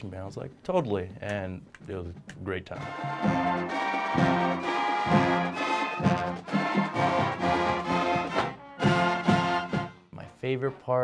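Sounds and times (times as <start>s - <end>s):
marching band brass playing: 2.8s - 10.1s.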